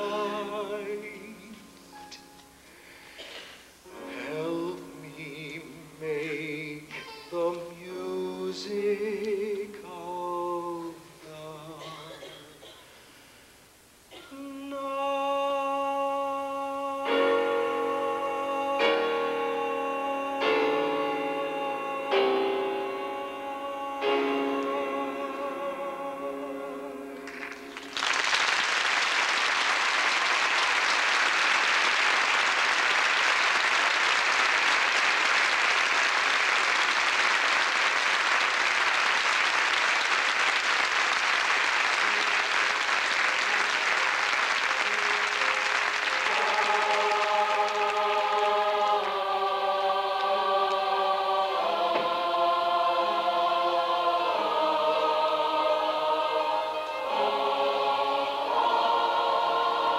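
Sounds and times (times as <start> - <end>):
choir singing sustained chords: 0.0 - 3.2, 3.9 - 6.8, 14.1 - 27.8, 45.2 - 59.9
audience applause: 27.2 - 49.2.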